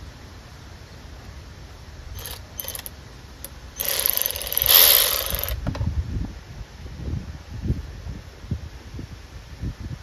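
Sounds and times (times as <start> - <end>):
cordless ratchet whirring: 2.2 - 2.9, 3.8 - 5.6.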